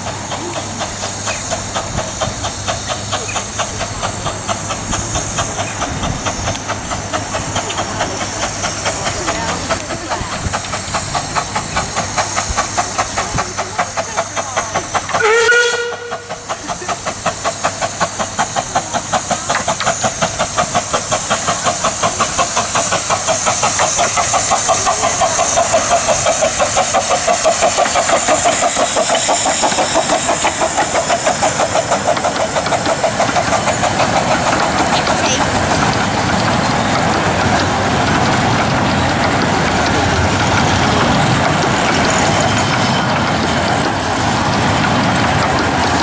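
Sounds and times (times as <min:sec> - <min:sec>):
steam hiss: 0:00.0 - 0:46.0
steam locomotive exhaust beats: 0:00.0 - 0:46.0
steam whistle blast: 0:15.2 - 0:16.4.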